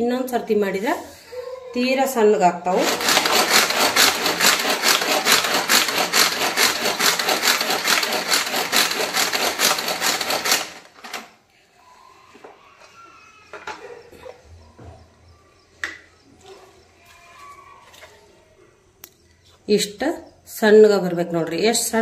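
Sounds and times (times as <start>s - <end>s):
pull-cord chopper whirring: 2.7s - 11.3s.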